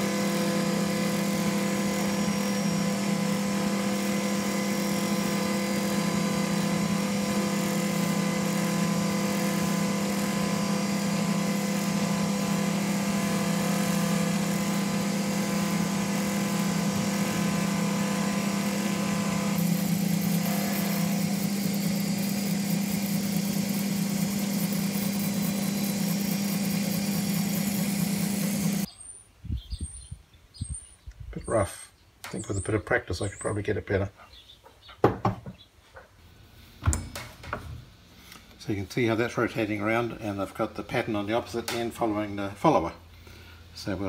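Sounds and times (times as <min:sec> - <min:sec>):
lathe motor hum: 0:00.0 - 0:28.9.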